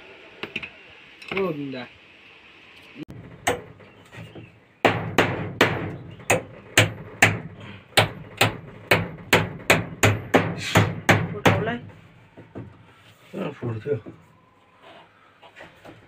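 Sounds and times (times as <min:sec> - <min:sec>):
hammer striking plastic pipe: 0:04.8 - 0:11.8.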